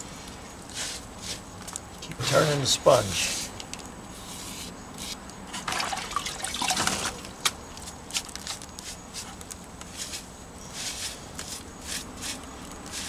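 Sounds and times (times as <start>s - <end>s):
damp sponge rubbing stone: 9.9s - 13.0s.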